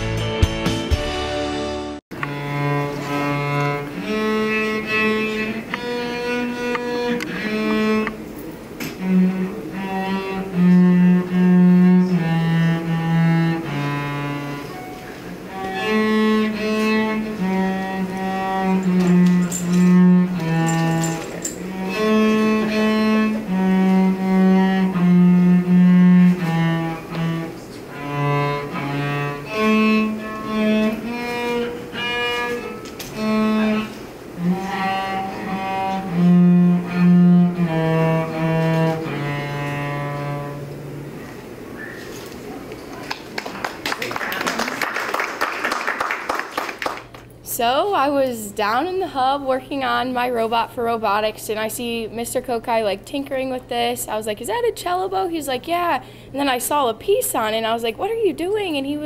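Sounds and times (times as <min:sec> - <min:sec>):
cello playing slow held notes: 0:02.2 - 0:41.6.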